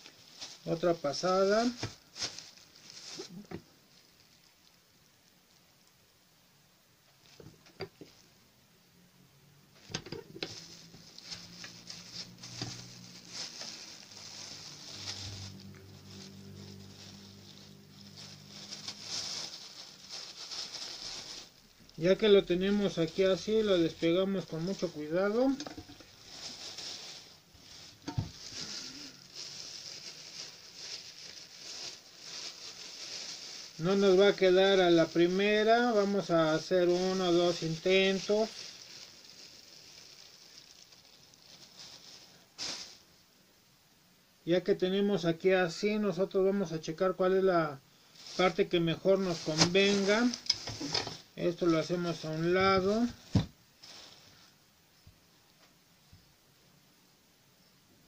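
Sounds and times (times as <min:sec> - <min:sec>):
plastic bag crinkling: 0:00.0 - 0:05.0, 0:09.7 - 0:43.1, 0:48.0 - 0:54.5.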